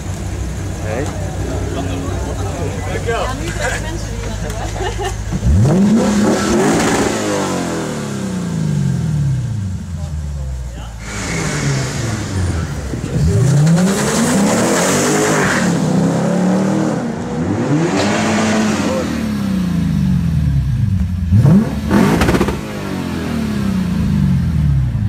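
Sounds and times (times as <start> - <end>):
car engine accelerating hard: 5.0 - 10.1, 11.0 - 25.0.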